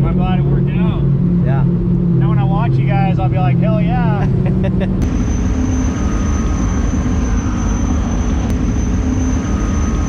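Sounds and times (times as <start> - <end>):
powerboat engine rumble: 0.0 - 10.0
faint high whine: 5.0 - 10.0.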